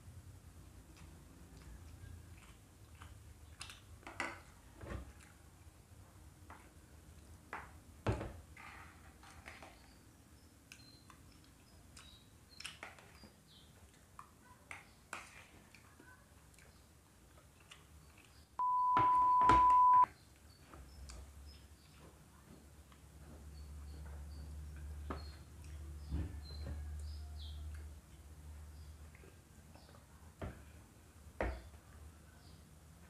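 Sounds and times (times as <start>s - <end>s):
electronic beep: 18.6s - 20.1s.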